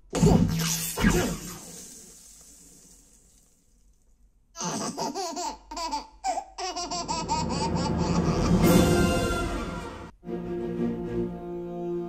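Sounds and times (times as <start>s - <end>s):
baby giggling and laughing: 4.6s - 9.2s.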